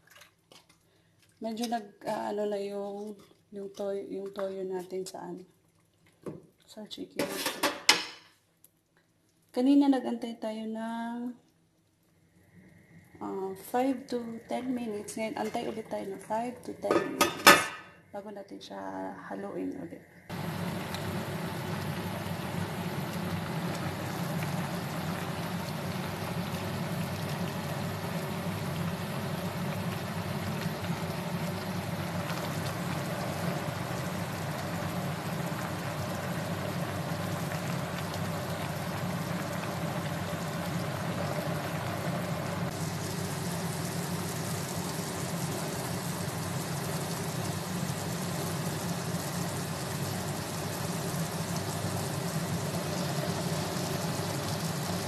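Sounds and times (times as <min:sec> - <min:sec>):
hiss: 0:42.6 - 0:47.2.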